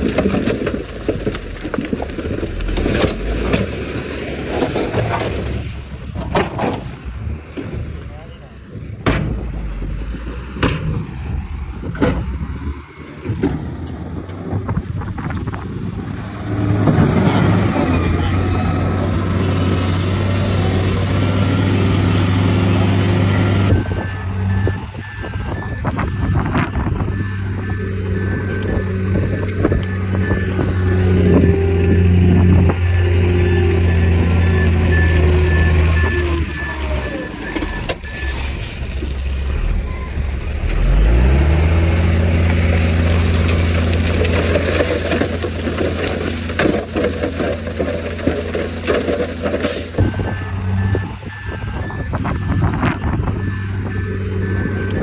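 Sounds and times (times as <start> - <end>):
heavy diesel machinery running: 0.0 - 55.0
engine revving: 15.9 - 47.5, 48.3 - 55.0
reversing alarm beeping: 21.9 - 41.7, 49.9 - 55.0.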